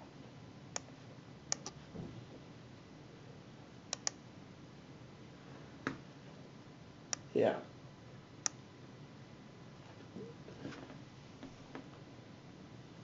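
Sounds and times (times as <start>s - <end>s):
faint computer clicks: 3.9s - 4.2s.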